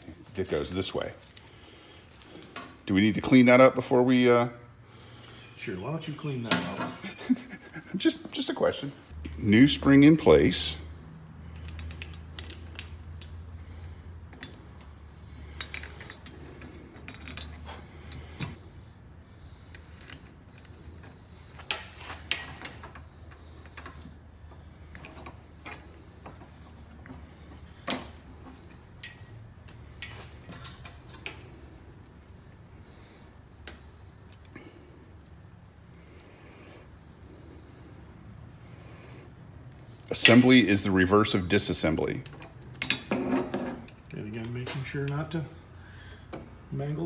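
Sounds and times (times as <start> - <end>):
metallic clicks and clinks: 11.5 - 13.4, 27.6 - 31.4.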